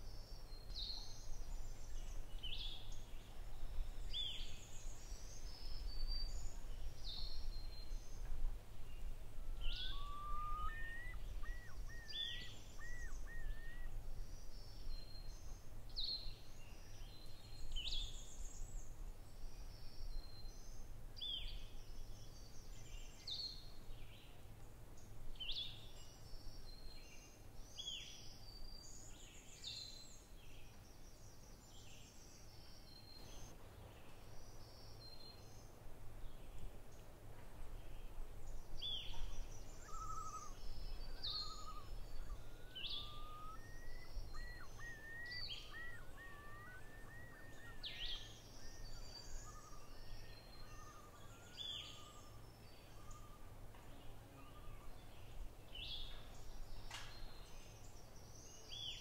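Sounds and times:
birds chirping: 9.0 - 15.6, 38.8 - 59.0
bird warbling: 9.7 - 13.9, 41.4 - 48.2.

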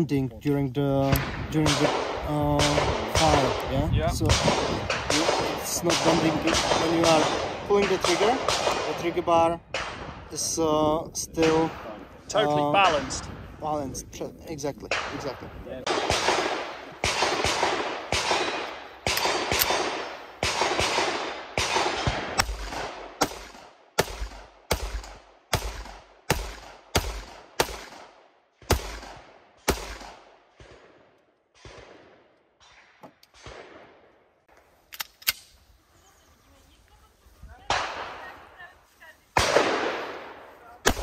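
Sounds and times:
pistol shots: 1.1 - 10.2, 14.9 - 34.1, 39.4 - 41.0.

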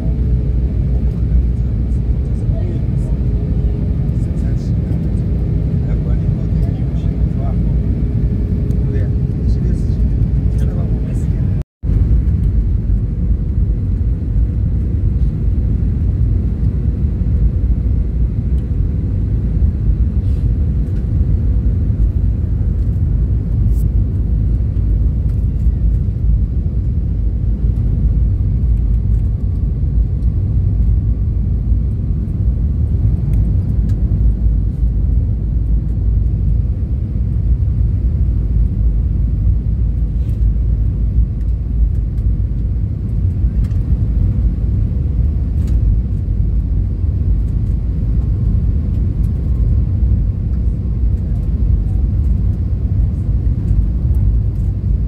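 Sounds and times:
jet cabin engine rumble: 0.0 - 55.0.

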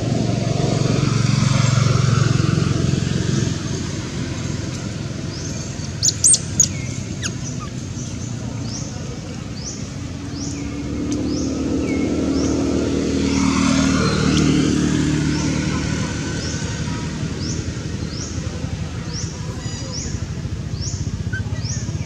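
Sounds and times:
distant traffic rumble: 0.0 - 22.0
sharp high chirps: 5.9 - 7.8.

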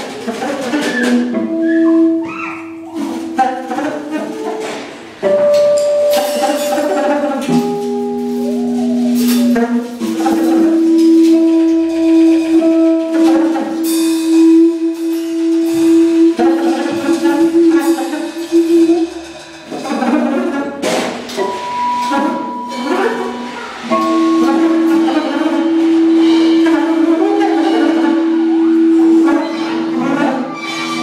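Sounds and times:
clattering percussion: 0.0 - 31.0
saxophone long tones: 5.2 - 19.3, 21.4 - 31.0.

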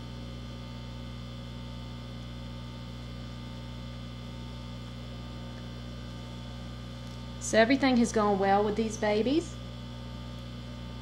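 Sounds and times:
electrical hum: 0.0 - 11.0.

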